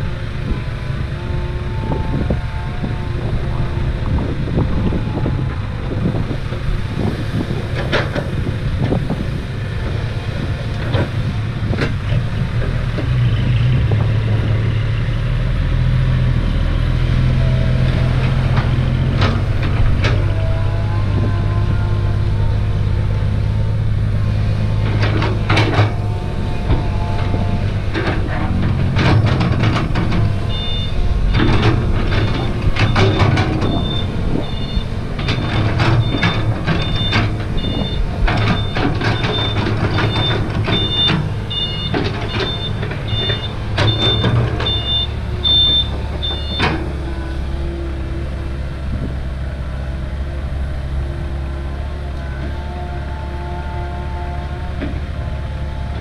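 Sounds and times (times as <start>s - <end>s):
diesel engines running: 0.0s - 56.0s
low engine drone: 0.0s - 56.0s
sharp clanks and knocks: 24.6s - 45.2s
reversing beeper: 30.4s - 46.8s.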